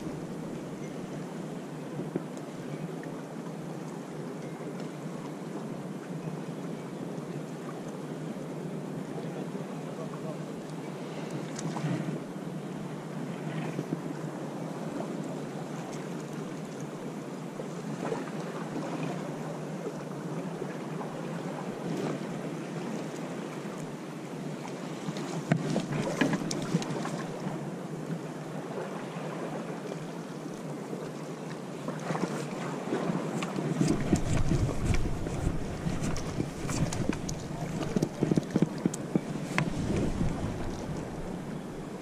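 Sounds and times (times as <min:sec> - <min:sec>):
water lapping against rocks: 0:24.9 - 0:27.5, 0:32.0 - 0:42.0
wind noise on microphone: 0:33.1 - 0:42.0.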